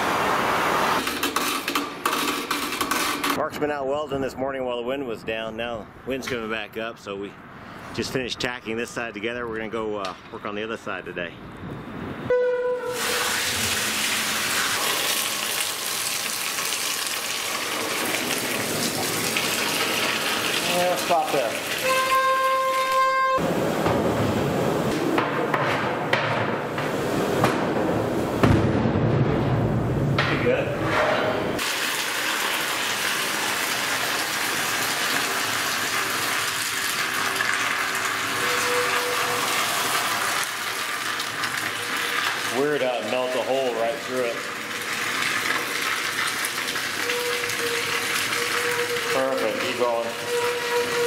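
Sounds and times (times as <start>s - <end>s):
molten lead pouring hiss: 12.9s - 22.0s, 31.6s - 51.0s.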